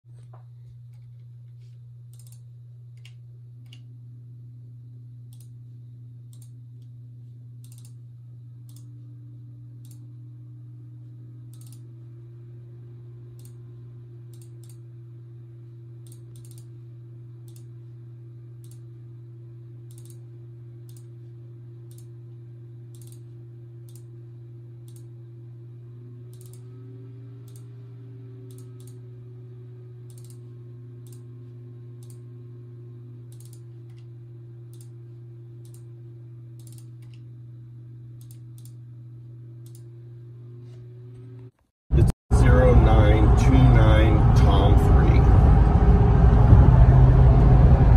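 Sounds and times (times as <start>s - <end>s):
steady low hum: 0.1s - 47.9s
computer mouse clicking: 2.1s - 2.4s, 6.3s - 6.6s, 7.6s - 8.0s, 8.7s - 8.9s, 9.8s - 10.0s, 11.5s - 11.9s, 13.4s - 13.6s, 14.3s - 14.8s, 16.0s - 16.7s, 17.4s - 17.7s, 18.6s - 18.8s, 19.9s - 20.2s, 20.8s - 21.1s, 21.9s - 22.1s, 22.9s - 24.1s, 24.8s - 25.1s, 26.3s - 26.7s, 27.4s - 27.7s, 28.5s - 29.0s, 30.0s - 30.4s, 31.0s - 31.2s, 32.0s - 32.2s, 33.3s - 34.1s, 34.7s - 34.9s, 35.6s - 35.8s, 36.6s - 37.2s, 38.2s - 38.8s, 39.6s - 39.9s.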